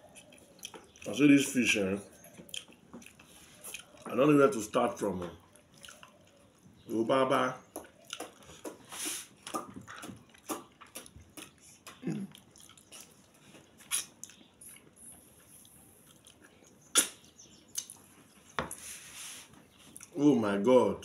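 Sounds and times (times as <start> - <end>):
wet chewing and lip-smacking: 0.0 - 4.2, 5.3 - 6.8, 7.7 - 18.5.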